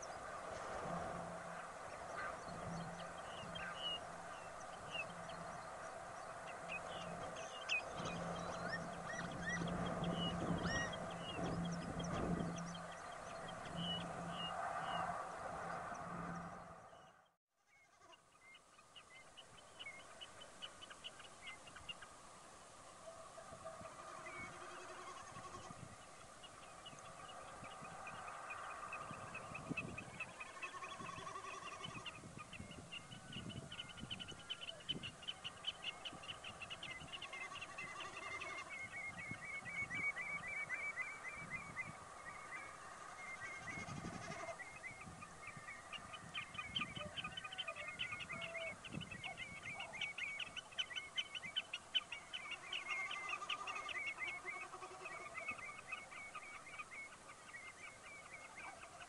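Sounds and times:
wading birds calling: 0:00.0 - 0:17.1, 0:18.1 - 0:59.0.

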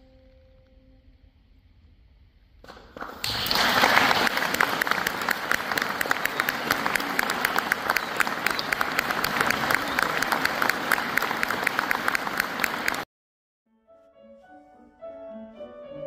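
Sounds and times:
audience applauding: 0:02.8 - 0:13.1.

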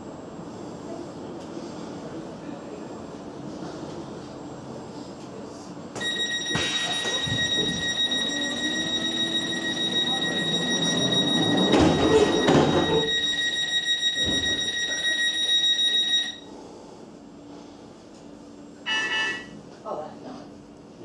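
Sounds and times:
train doors clattering shut: 0:06.0 - 0:08.1, 0:09.8 - 0:15.2
high-pitched electronic tone: 0:18.9 - 0:19.5.

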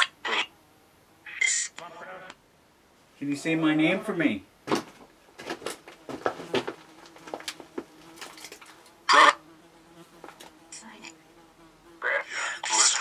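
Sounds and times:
choppy clicks and static: 0:01.5 - 0:02.4.

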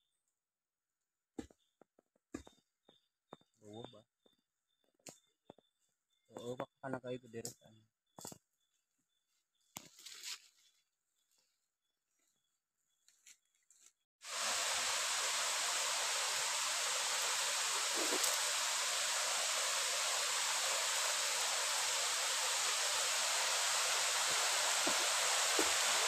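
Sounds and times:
waterfall rushing: 0:14.3 - 0:26.0.

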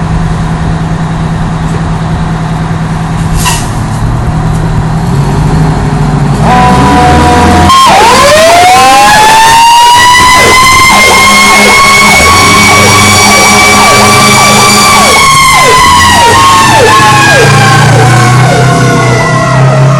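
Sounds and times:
fire engine siren wail and yelp: 0:06.4 - 0:19.9
low horn blasts: 0:06.4 - 0:19.9.

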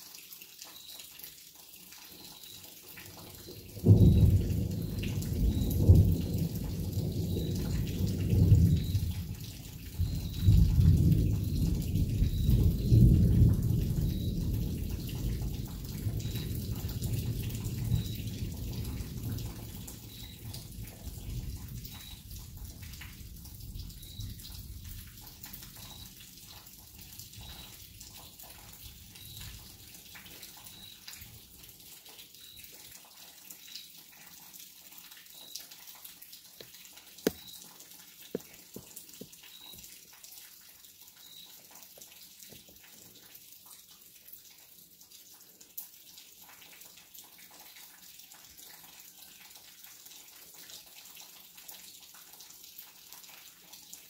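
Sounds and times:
rain: 0:00.0 - 0:54.0
water dripping: 0:00.0 - 0:54.0
rolling thunder: 0:03.8 - 0:09.4, 0:10.0 - 0:20.5.

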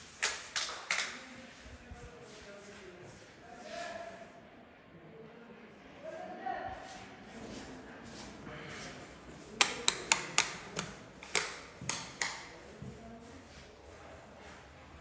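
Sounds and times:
footsteps on tile floor: 0:07.4 - 0:14.8.

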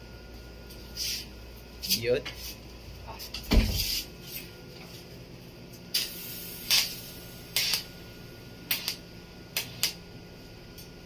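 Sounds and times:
steady low hum: 0:00.0 - 0:11.0
arc welding hissing bursts: 0:06.0 - 0:07.9, 0:08.7 - 0:09.0.

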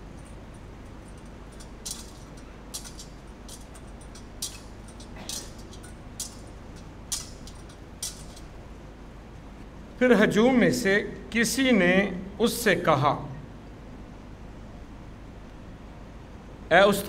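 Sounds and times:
censer chains clinking: 0:00.0 - 0:09.0.

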